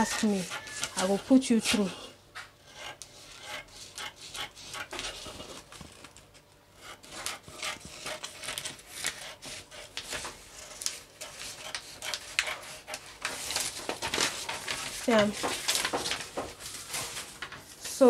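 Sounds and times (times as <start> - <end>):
paper rustling: 5.0 - 6.3, 7.2 - 18.0
scissors snipping paper: 7.0 - 16.5.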